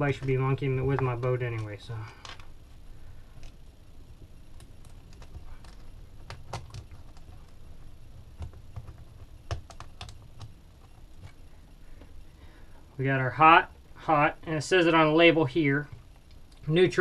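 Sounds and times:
rustling of cable: 0:00.0 - 0:13.0.

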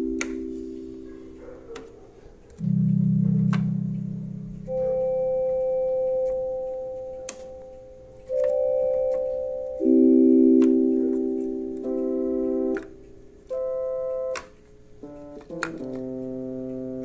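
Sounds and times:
electronic organ held notes: 0:00.0 - 0:01.5, 0:02.6 - 0:17.0
small clicks: 0:10.6 - 0:17.0.

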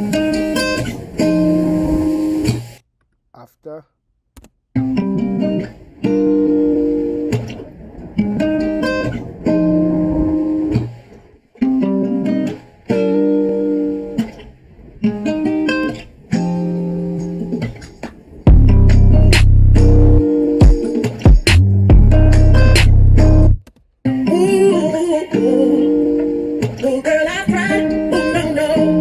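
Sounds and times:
guitar plucked chords: 0:00.0 - 0:02.3, 0:04.8 - 0:11.0, 0:11.6 - 0:29.0
loud deep bass: 0:18.5 - 0:20.2, 0:21.5 - 0:23.6.

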